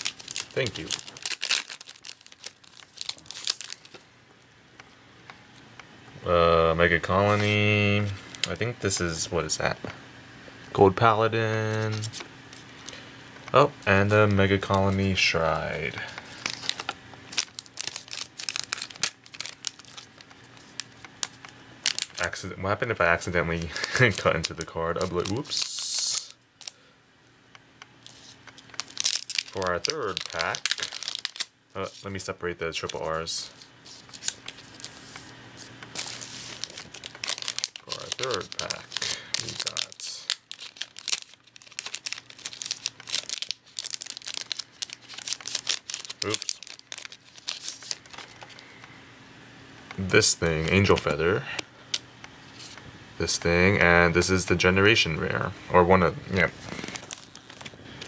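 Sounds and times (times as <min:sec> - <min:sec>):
foil wrappers crinkling: 0:00.0 - 0:04.1, 0:07.0 - 0:09.2, 0:11.6 - 0:26.8, 0:28.0 - 0:48.8, 0:56.3 - 0:58.0.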